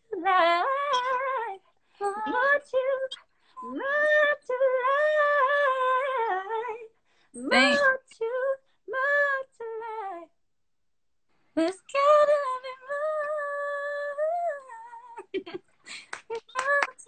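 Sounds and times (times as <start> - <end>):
woman singing wordless runs: 7.5 - 7.8.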